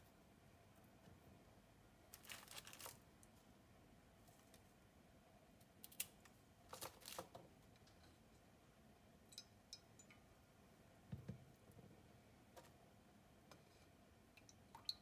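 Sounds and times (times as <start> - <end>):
plastic wrapper rustling: 2.1 - 3.0, 6.7 - 7.3.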